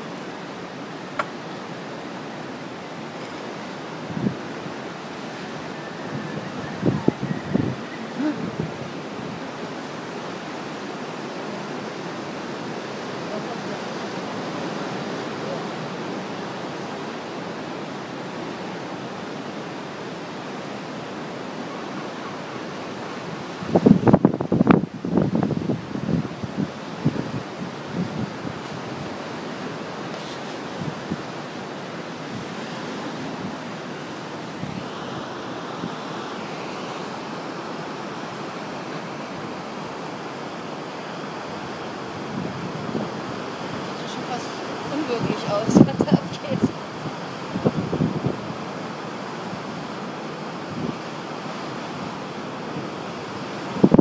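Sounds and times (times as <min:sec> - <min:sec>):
ocean waves breaking on rocks: 0:00.0 - 0:54.0
wind on microphone: 0:03.5 - 0:12.8, 0:23.4 - 0:54.0.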